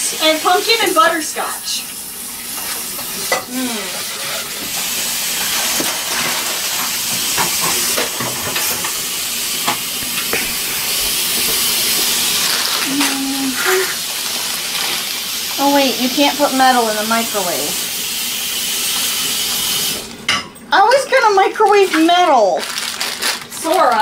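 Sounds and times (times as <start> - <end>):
tap water running into sink: 4.5 - 20.2.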